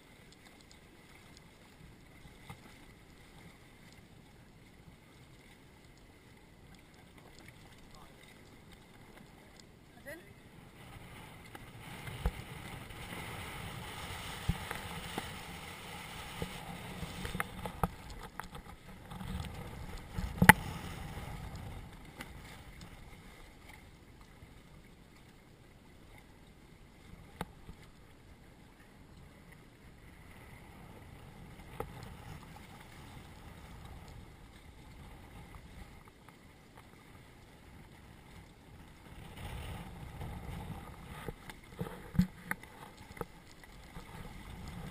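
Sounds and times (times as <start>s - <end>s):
water splashing against hull: 0.0s - 44.9s.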